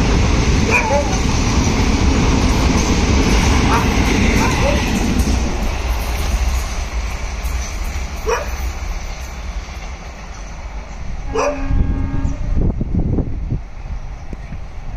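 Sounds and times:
train rumbling on rails: 0:00.0 - 0:14.9
dog barking: 0:00.7 - 0:01.2, 0:08.2 - 0:08.6, 0:11.3 - 0:11.7.

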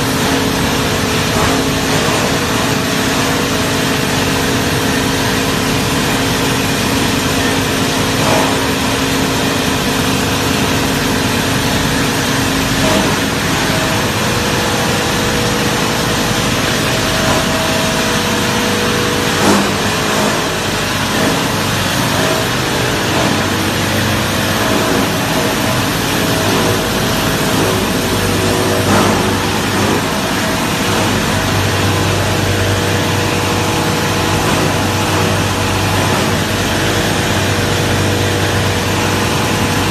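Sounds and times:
machine humming loudly: 0:00.0 - 0:39.9
short machine knocks: 0:17.1 - 0:31.8.

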